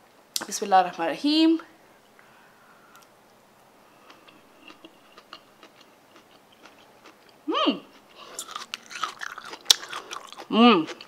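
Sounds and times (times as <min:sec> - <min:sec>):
person chewing crunchy food: 0:04.0 - 0:11.0.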